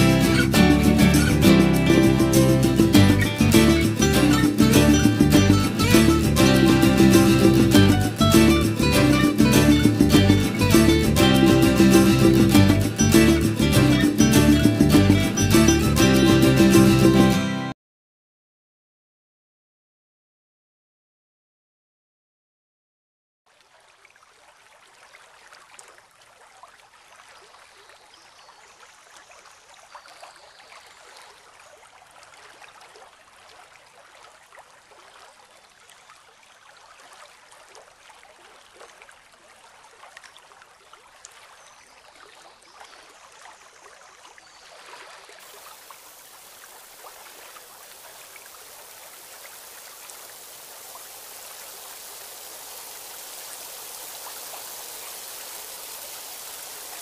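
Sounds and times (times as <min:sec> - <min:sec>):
water splashes and drips: 0:00.0 - 0:17.1, 0:23.5 - 0:57.0
waterfall rushing into pool: 0:45.4 - 0:57.0.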